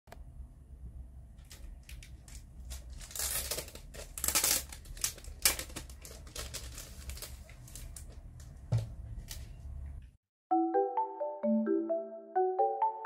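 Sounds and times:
cellophane crinkling: 1.4s - 8.4s.

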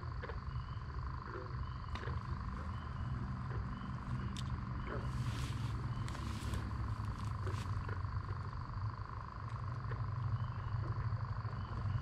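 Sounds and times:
frogs calling: 0.0s - 12.0s
insects: 0.0s - 12.0s
low steady hum: 0.0s - 12.0s.

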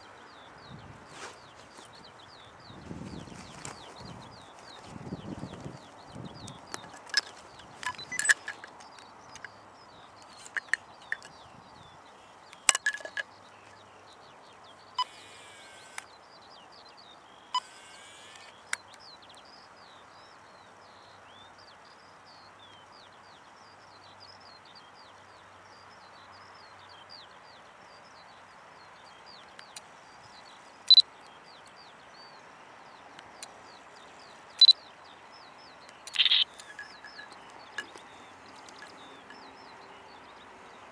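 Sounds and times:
birds chirping: 0.0s - 40.9s
camcorder whirs: 15.0s - 16.1s, 17.6s - 18.5s.

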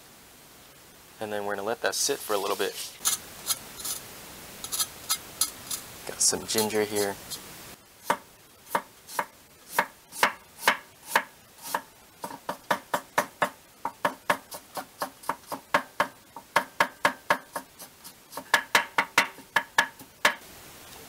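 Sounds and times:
knife chopping on cutting board: 8.1s - 19.9s.

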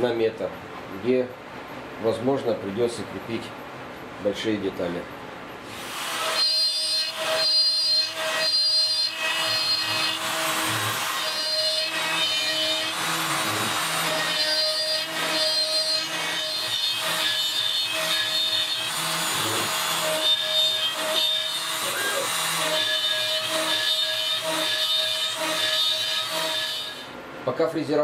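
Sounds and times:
router spindle milling wood: 5.7s - 27.1s.

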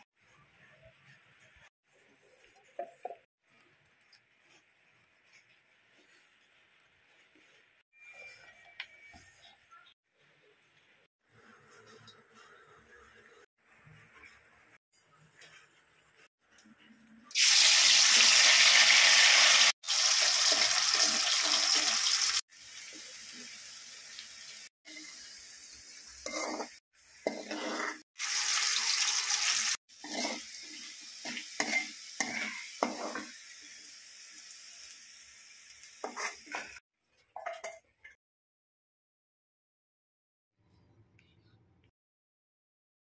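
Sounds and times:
food sizzling in hot oil: 17.3s - 36.8s
metal spoon scraping wok: 26.2s - 33.4s, 36.0s - 36.8s.

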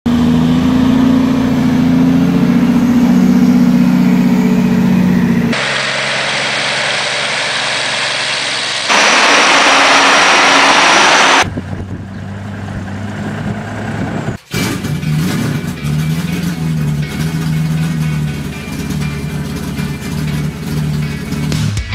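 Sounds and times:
truck diesel engine droning: 0.1s - 21.8s
loud rushing noise: 5.5s - 11.5s.

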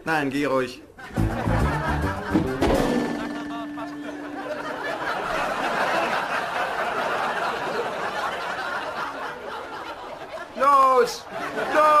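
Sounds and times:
audience laughing: 1.0s - 12.0s.

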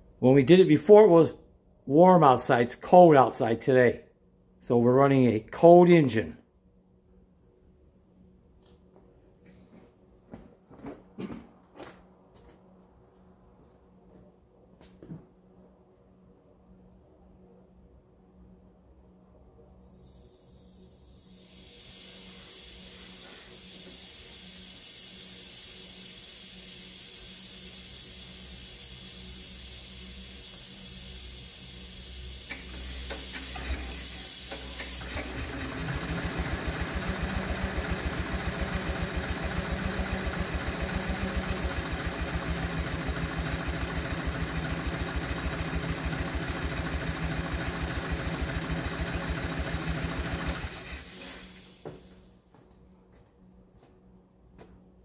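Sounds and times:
compressed gas hissing: 20.0s - 52.4s
engine turning over: 32.2s - 52.1s.

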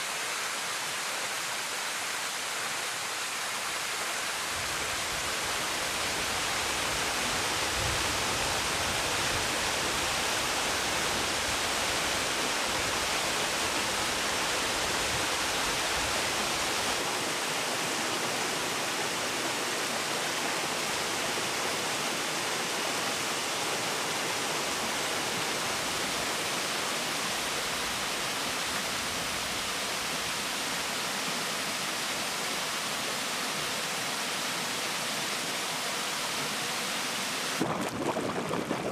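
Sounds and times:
water splashing over rocks: 37.5s - 38.9s.

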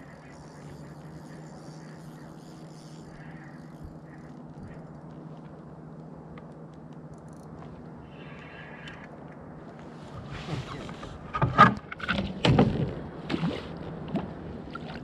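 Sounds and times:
low motor hum: 0.0s - 15.0s
faint clicks: 2.7s - 9.4s.

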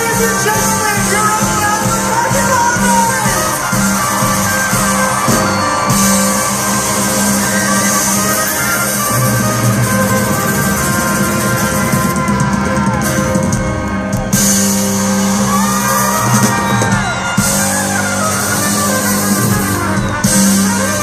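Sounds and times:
crowd shouting and whooping: 0.0s - 21.0s
live rock band playing: 0.0s - 21.0s.

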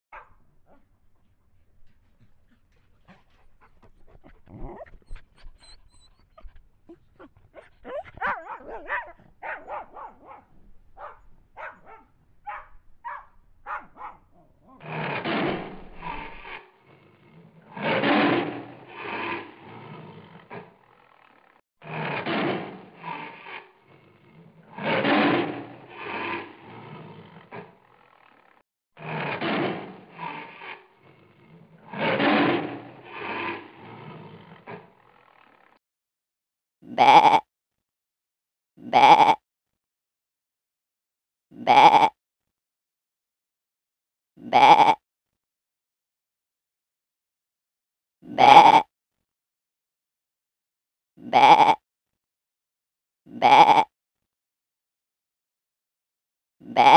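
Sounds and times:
puppy yipping: 0.1s - 0.4s, 4.5s - 10.4s, 11.0s - 14.2s
animal calls: 2.5s - 10.4s, 36.9s - 37.4s, 38.8s - 39.4s, 41.6s - 42.1s, 44.4s - 45.0s, 48.3s - 48.8s, 51.2s - 51.8s, 53.3s - 53.9s, 56.7s - 56.9s.

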